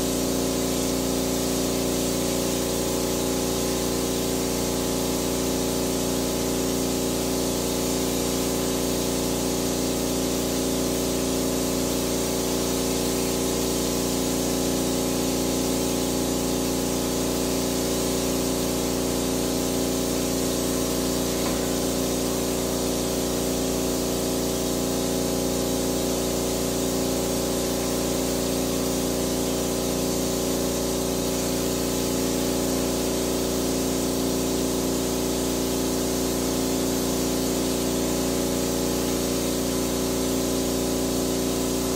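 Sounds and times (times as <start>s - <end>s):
sprayer pump motor humming: 0.0s - 41.9s
spray hissing: 12.2s - 24.1s.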